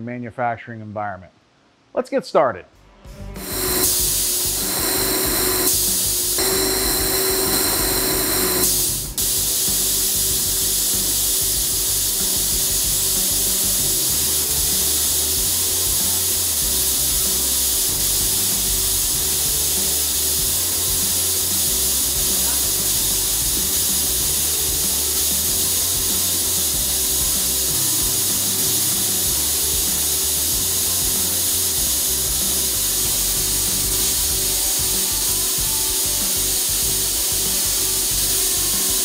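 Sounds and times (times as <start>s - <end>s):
laser welder hissing: 3.4s - 39.0s.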